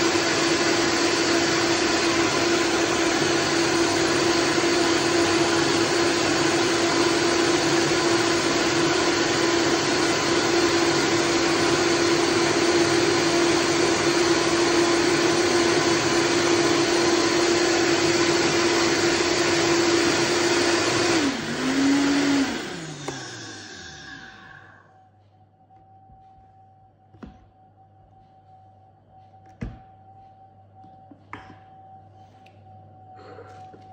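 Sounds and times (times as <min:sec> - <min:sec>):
blender motor whining: 0:00.0 - 0:24.9.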